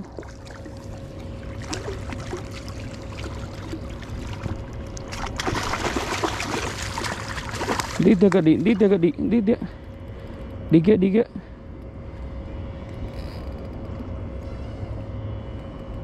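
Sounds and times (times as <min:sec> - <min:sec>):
water splashing against boat: 0:00.0 - 0:08.9
faint hum: 0:00.0 - 0:16.0.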